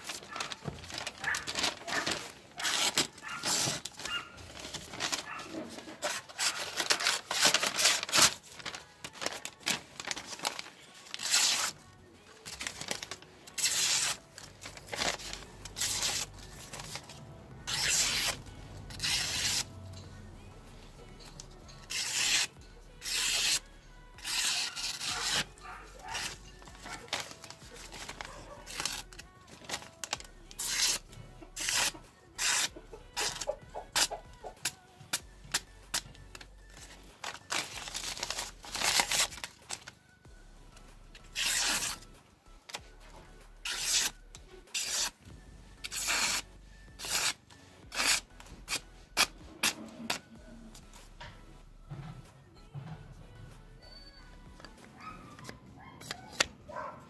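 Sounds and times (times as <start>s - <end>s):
knife slicing paper: 0.0s - 11.8s, 12.5s - 17.1s, 17.7s - 19.7s, 21.8s - 23.6s, 24.2s - 34.2s, 37.2s - 39.9s, 41.3s - 42.0s, 43.6s - 45.2s, 45.8s - 50.2s.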